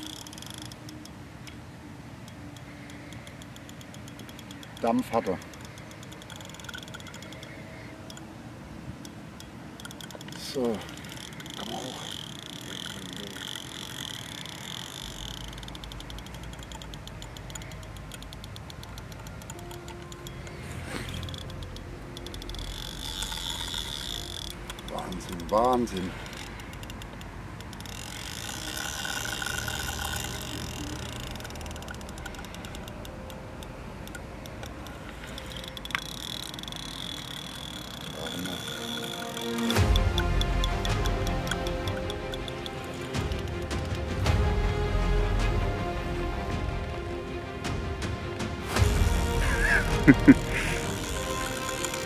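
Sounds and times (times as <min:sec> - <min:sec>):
fishing reel clicking: 0:00.0 - 0:08.4, 0:09.0 - 0:44.1, 0:49.4 - 0:52.0.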